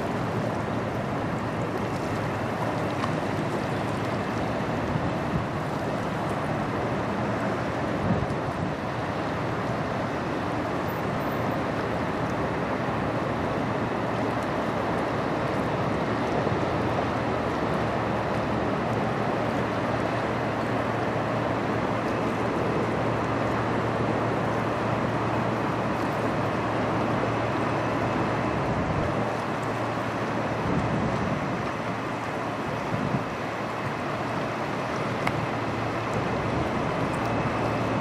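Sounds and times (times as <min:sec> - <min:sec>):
flowing river water: 0:00.0 - 0:38.0
ship engines droning: 0:00.0 - 0:38.0
wind on microphone: 0:30.5 - 0:31.7, 0:32.8 - 0:34.0.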